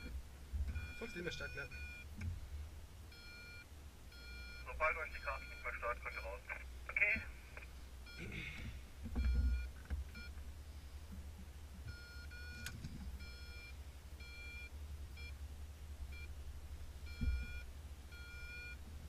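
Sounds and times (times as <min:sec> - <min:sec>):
electronic beeps: 0:00.8 - 0:02.1, 0:03.1 - 0:06.5
thumps: 0:08.6 - 0:10.2, 0:17.1 - 0:17.6.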